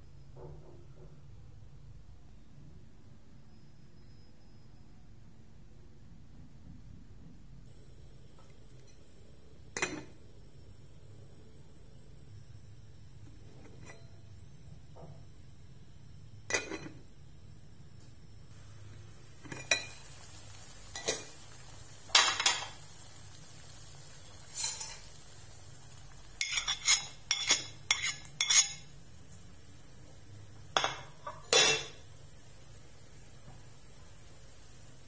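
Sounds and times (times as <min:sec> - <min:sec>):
kitchenware clinking on metal pot: 0:09.8 - 0:10.1, 0:13.5 - 0:14.2, 0:16.5 - 0:17.0, 0:19.4 - 0:20.0, 0:22.1 - 0:22.7, 0:24.5 - 0:25.1, 0:26.4 - 0:28.9, 0:30.8 - 0:32.0.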